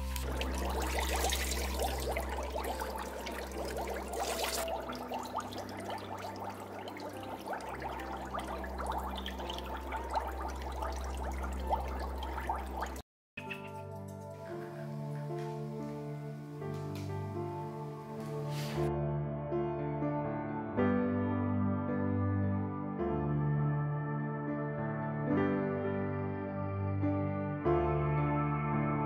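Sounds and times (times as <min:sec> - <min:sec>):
water splashing in a tub: 0:00.0 - 0:13.0
water pouring and trickling: 0:00.0 - 0:15.4.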